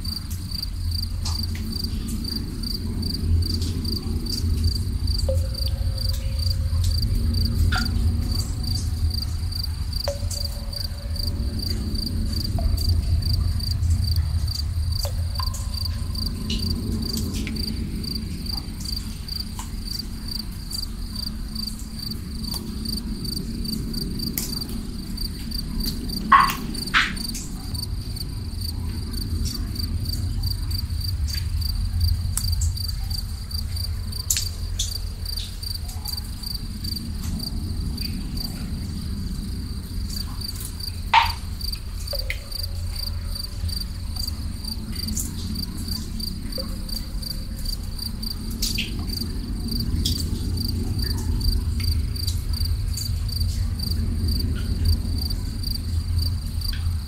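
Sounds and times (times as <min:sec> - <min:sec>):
low rumble: 0:00.0 - 0:35.6
water drips plinking: 0:00.0 - 0:55.8
crickets chirping: 0:00.0 - 0:57.0.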